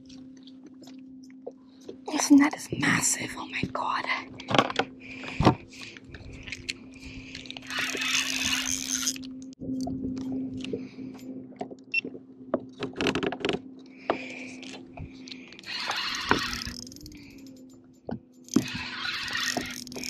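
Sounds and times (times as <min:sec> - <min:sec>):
steady low hum: 0:00.0 - 0:20.0
fishing reel clicks: 0:07.4 - 0:09.4, 0:15.5 - 0:17.8, 0:18.4 - 0:20.0.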